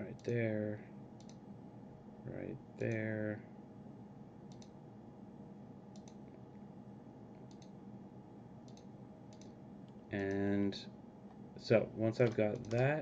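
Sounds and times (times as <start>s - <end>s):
faint room hum: 0.0s - 13.0s
computer mouse button clicks: 4.5s - 4.7s, 6.0s - 6.2s, 7.4s - 7.7s.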